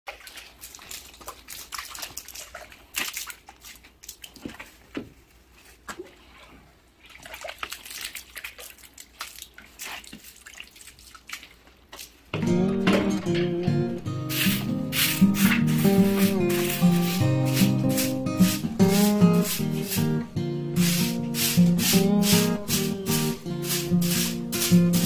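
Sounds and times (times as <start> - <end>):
water splashing and dripping: 0.1 - 12.4, 14.3 - 25.0
broom scrubbing wet concrete: 7.2 - 12.2, 14.2 - 25.0
loud music: 12.4 - 25.0.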